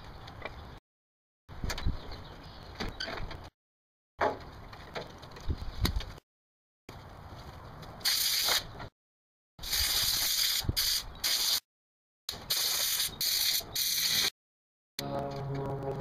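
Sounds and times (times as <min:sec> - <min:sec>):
compressed air hissing: 0:12.4 - 0:14.3.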